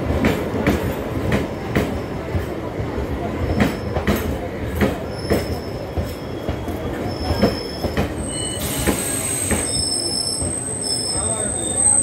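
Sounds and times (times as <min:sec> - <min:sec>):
train wheels clacking over rail joints: 0:00.0 - 0:10.6
steady train rumble: 0:00.0 - 0:12.0
high-pitched wheel squeal: 0:05.1 - 0:12.0.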